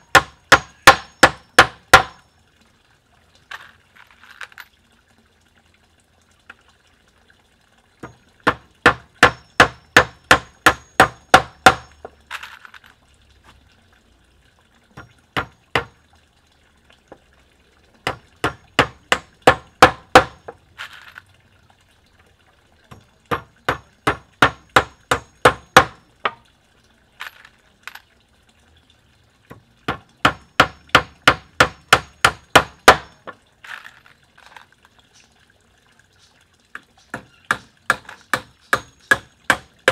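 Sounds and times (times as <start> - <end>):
hammer driving nails into wood: 0.1 - 2.2, 30.2 - 33.2.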